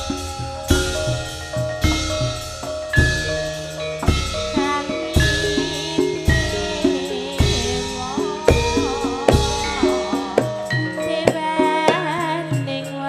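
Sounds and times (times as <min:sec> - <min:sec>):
hand drum strokes: 0:00.0 - 0:12.8
metallophone notes: 0:00.0 - 0:13.0
woman singing through microphone: 0:04.5 - 0:13.0.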